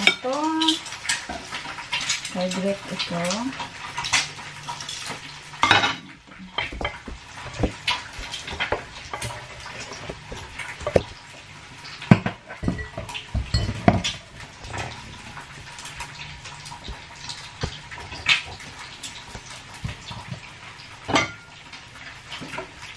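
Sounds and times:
steak sizzling on a grill: 0.0 - 22.9
plates and cutlery clinking: 3.9 - 11.2, 12.0 - 15.1, 21.0 - 21.5.

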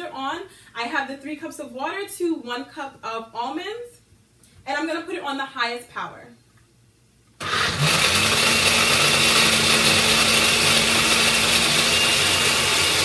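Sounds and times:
blender running: 7.4 - 13.0.

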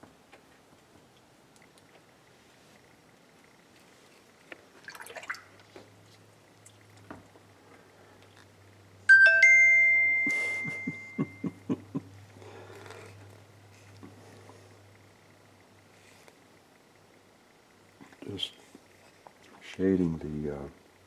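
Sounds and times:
faint clicks and rustles: 0.0 - 4.8, 12.3 - 17.1, 17.9 - 19.9
two-note chime: 9.1 - 11.5.

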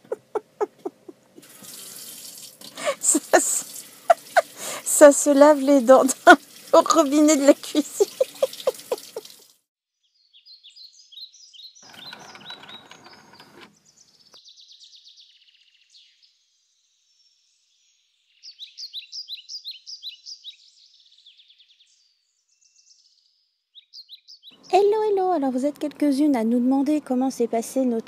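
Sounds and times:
high-pitched chirping calls: 0.0 - 1.4, 6.5 - 9.4
brief rustling: 11.9 - 13.8.

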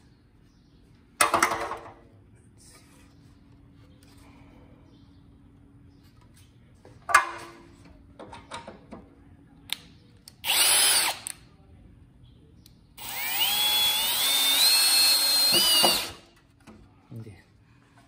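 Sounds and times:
cordless drill drilling into wood: 10.4 - 11.3, 13.0 - 16.2.

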